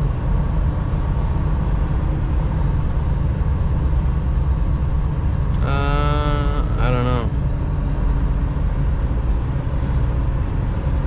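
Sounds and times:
diesel truck engine running: 0:00.0 - 0:11.0
road rumble: 0:00.0 - 0:11.0
pitched voice-like sound: 0:05.6 - 0:07.3.

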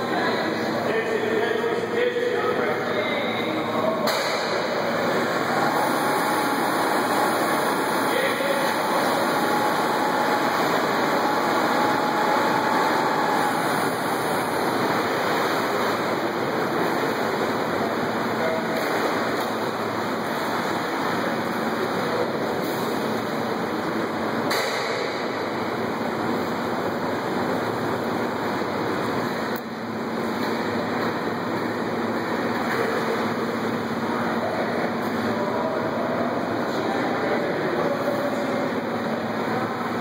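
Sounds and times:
rushing water: 0:02.7 - 0:24.7.

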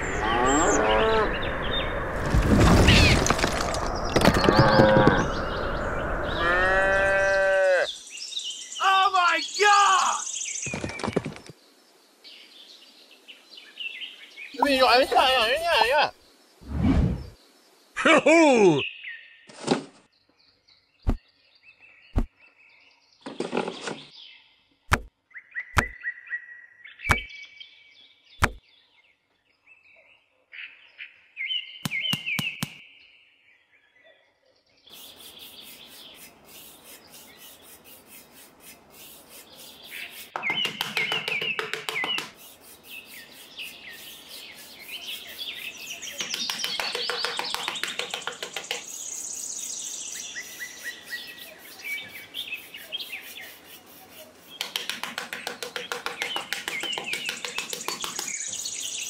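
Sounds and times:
birds chirping and twittering: 0:00.0 - 0:18.0, 0:18.6 - 0:59.0
sharp taps: 0:27.1 - 0:27.3, 0:28.4 - 0:28.6, 0:40.4 - 0:42.4, 0:46.2 - 0:48.9, 0:54.6 - 0:58.4.

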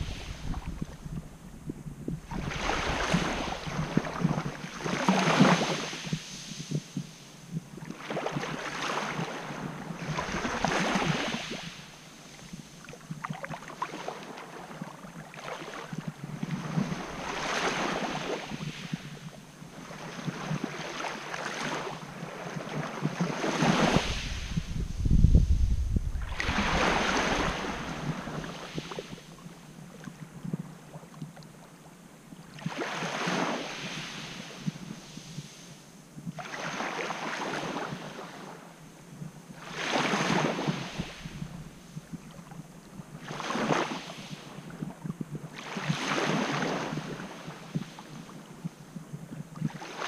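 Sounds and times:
small waves washing on sand: 0:00.0 - 0:01.4, 0:02.1 - 0:31.8, 0:32.4 - 0:38.9, 0:39.5 - 0:50.0
wind buffeting microphone: 0:00.0 - 0:04.6, 0:23.6 - 0:29.2.

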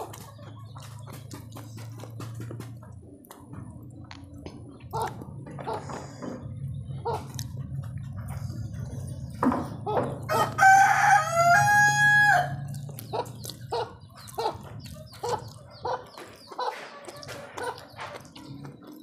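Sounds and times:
wet chewing and mouth clicks: 0:00.0 - 0:05.6, 0:07.0 - 0:09.8, 0:12.5 - 0:19.0
rooster crowing: 0:10.3 - 0:12.6.

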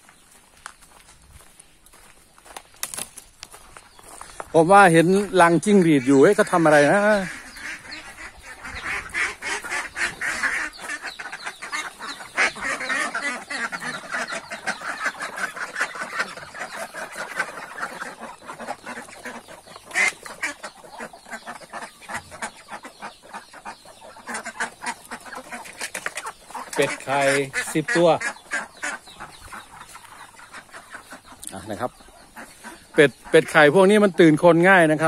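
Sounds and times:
ducks quacking: 0:00.0 - 0:35.0.

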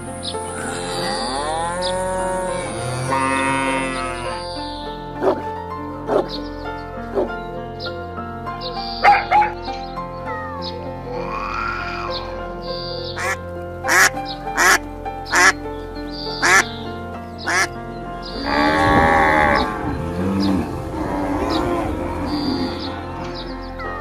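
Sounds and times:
background music: 0:00.0 - 0:24.0
cattle mooing: 0:00.5 - 0:04.5, 0:11.0 - 0:12.6, 0:18.3 - 0:23.4.

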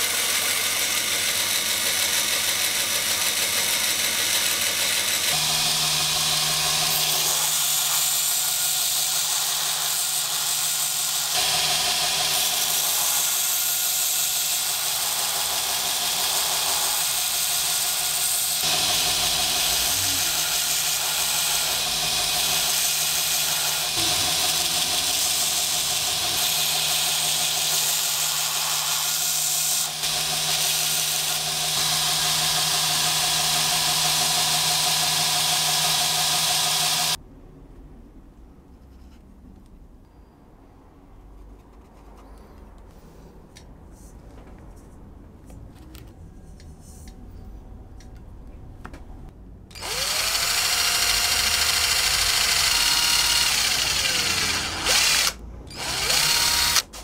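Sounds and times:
band saw cutting plastic: 0:00.0 - 0:37.2, 0:49.7 - 0:57.0
belt grinder sanding: 0:00.0 - 0:37.2, 0:49.7 - 0:57.0.

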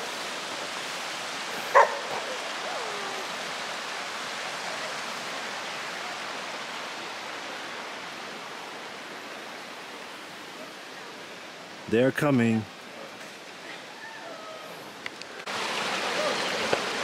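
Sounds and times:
water trickling over rocks: 0:14.9 - 0:17.0.

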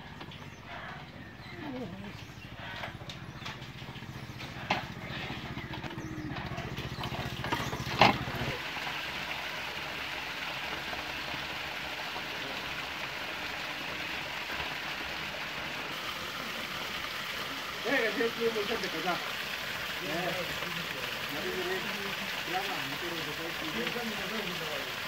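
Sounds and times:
motorcycle engine running: 0:00.0 - 0:08.6
waterfall splashing into a pool: 0:04.0 - 0:25.0.

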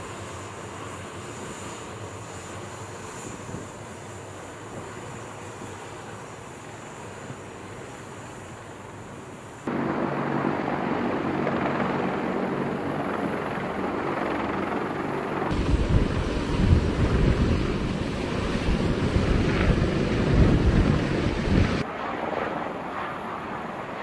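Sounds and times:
helicopters flying past: 0:09.7 - 0:24.0.

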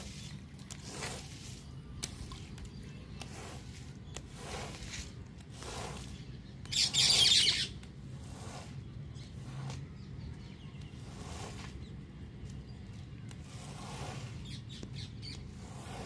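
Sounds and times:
brush scrubbing carpet: 0:00.0 - 0:12.0, 0:13.3 - 0:16.0.

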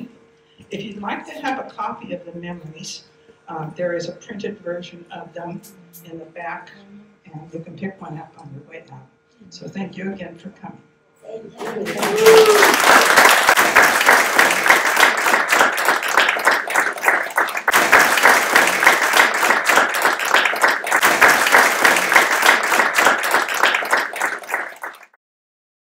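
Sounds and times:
audience applauding: 0:11.6 - 0:25.2.

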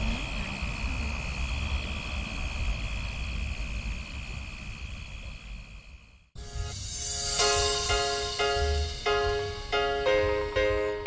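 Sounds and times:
low rumble: 0:06.4 - 0:10.0.

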